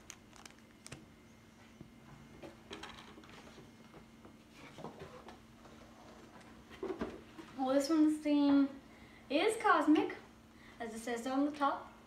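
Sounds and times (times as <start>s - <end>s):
small clicks and rustles: 0.0s - 1.0s
low room hum: 0.0s - 12.0s.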